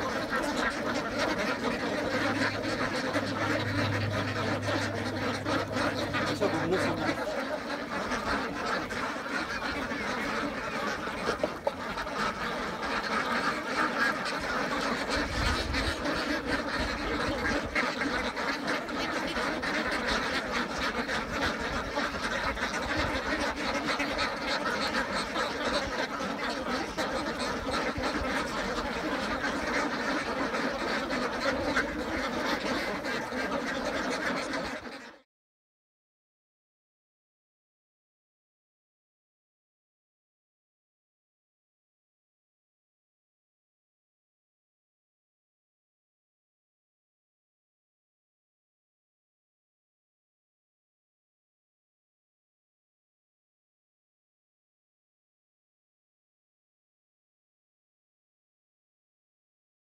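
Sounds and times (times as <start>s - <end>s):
ducks quacking: 0.0s - 35.3s.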